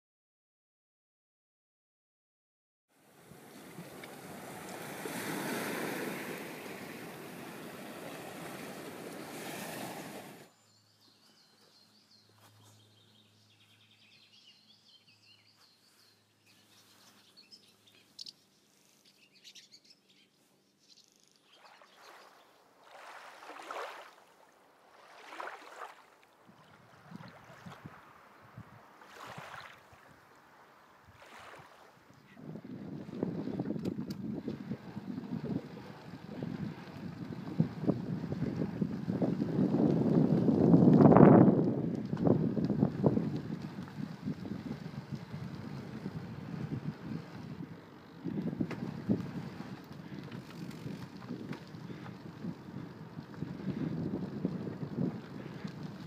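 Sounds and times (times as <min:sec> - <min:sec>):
short rushes of wind or water: 0:03.1 - 0:10.5, 0:21.5 - 0:56.0
small birds chirping: 0:10.5 - 0:22.6.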